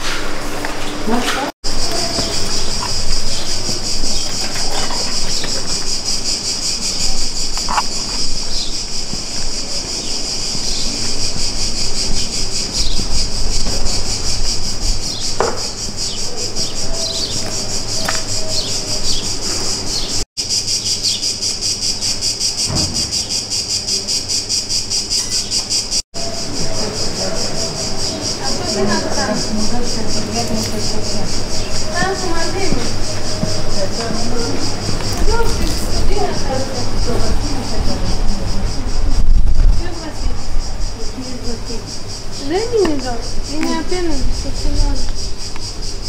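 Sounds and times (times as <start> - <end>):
cicadas buzzing: 0.0 - 46.0.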